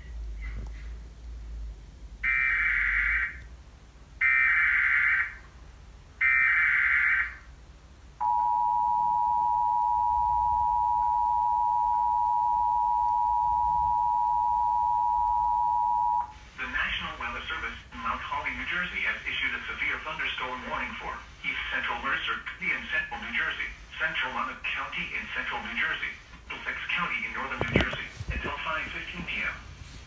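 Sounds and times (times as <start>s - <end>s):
two-tone attention signal: 8.2s - 16.3s.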